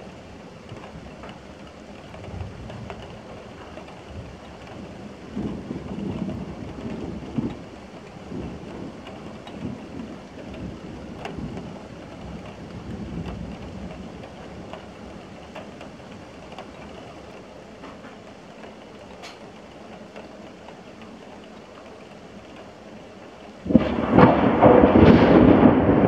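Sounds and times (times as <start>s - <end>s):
low rumble of thunder: 0.0s - 17.0s, 23.6s - 26.0s
raindrops ticking close: 0.0s - 26.0s
steady rain: 0.0s - 26.0s.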